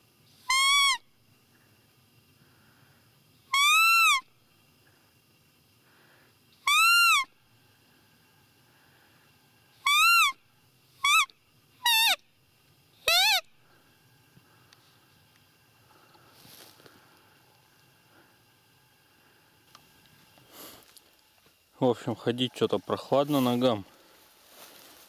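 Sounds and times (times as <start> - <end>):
high piping deer calls: 0.3 - 2.6, 3.3 - 5.0, 5.9 - 15.0.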